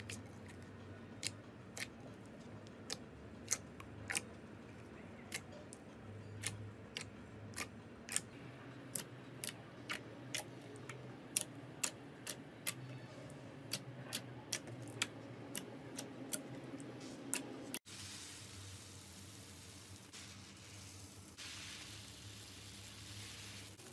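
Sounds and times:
steady hiss: 17.9s - 23.9s.

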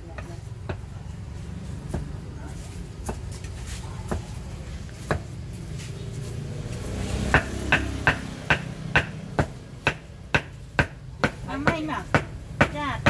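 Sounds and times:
cleaver chopping on wooden board: 7.2s - 12.8s.

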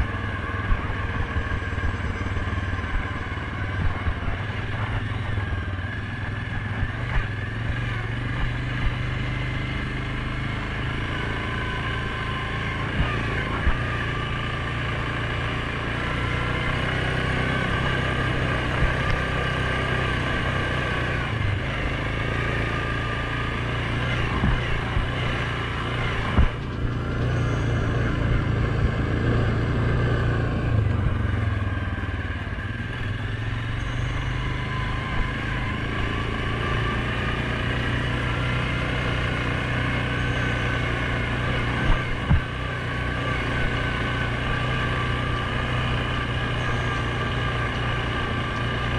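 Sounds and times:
atv engine running: 0.0s - 48.9s
knocks over rough ground: 26.2s - 27.0s, 41.9s - 42.5s.

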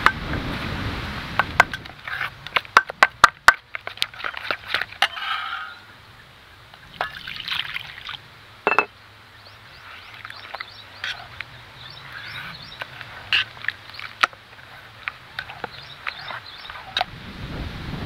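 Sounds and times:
spoon stirring wet mixture: 2.0s - 5.5s, 9.8s - 17.1s
water pouring into bowl: 7.0s - 8.2s
metal clank and ring: 8.7s - 8.9s.

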